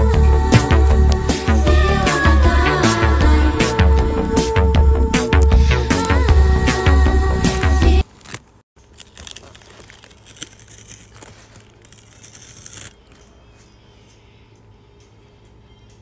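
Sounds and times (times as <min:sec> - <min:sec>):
background music: 0:00.0 - 0:08.0
plastic film crackling peeled: 0:07.9 - 0:13.4.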